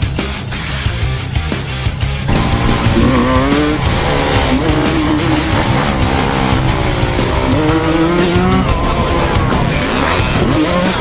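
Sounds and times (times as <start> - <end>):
background music: 0.0 - 11.0
dirt bike engine revving: 2.2 - 11.0.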